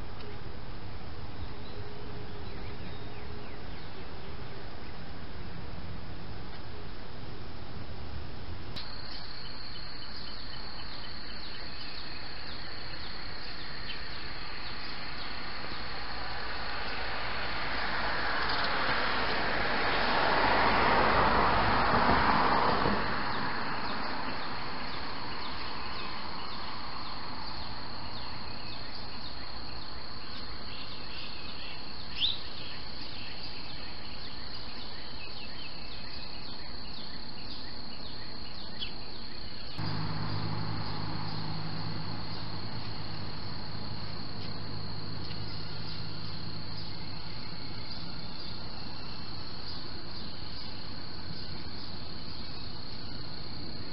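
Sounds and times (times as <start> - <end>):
low hum: 39.8 - 47.7.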